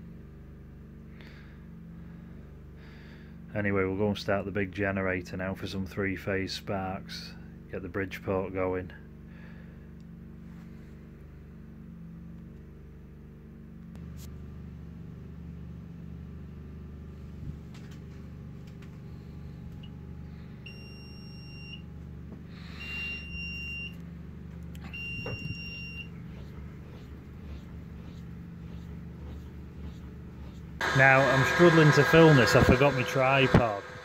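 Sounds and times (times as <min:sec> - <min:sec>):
low machine hum: 0:00.0 - 0:34.0.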